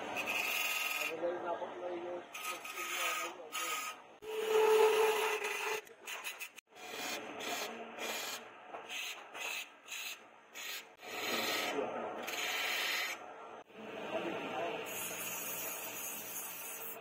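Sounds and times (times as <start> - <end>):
chisel scraping wood on lathe: 0.2 - 1.2, 2.3 - 13.2.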